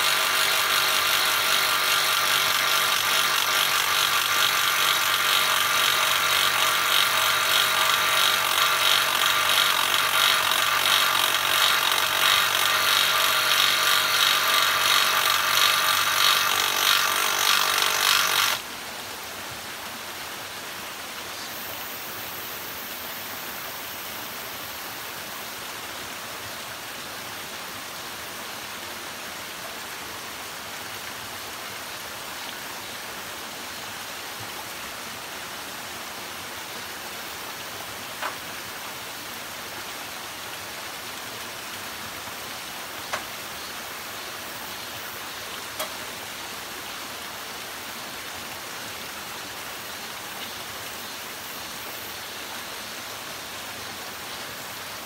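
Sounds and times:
power tool or small engine running: 0.0 - 18.6, 41.3 - 46.1
creek and small waterfall rushing: 0.0 - 55.0.

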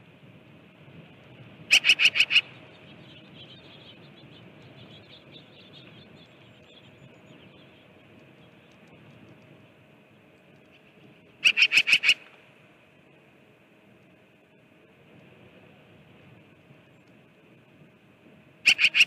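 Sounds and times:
small birds twittering: 1.6 - 14.6, 18.6 - 19.0
bird harsh call: 1.7 - 4.0, 11.4 - 12.4, 18.6 - 19.0.

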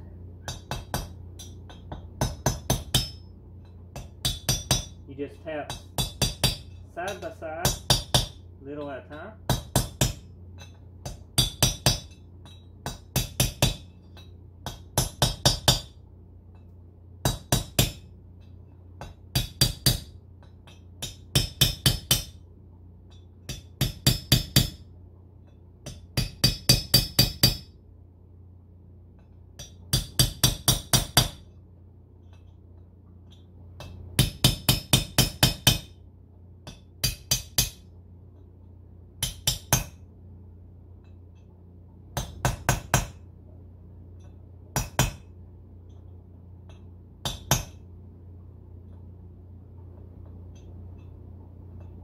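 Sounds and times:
hammer tapping metal: 0.4 - 5.0, 5.6 - 27.8, 29.2 - 31.6, 32.2 - 36.0, 36.6 - 37.9, 39.2 - 40.0, 42.2 - 43.3, 44.2 - 47.9.

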